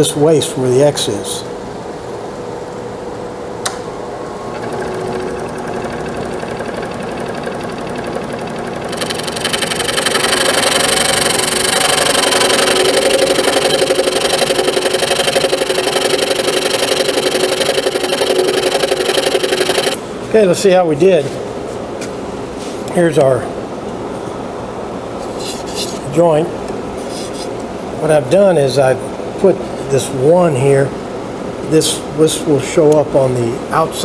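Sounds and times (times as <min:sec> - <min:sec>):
switch click: 0:03.6 - 0:03.9
scroll saw cutting wood: 0:08.9 - 0:20.0.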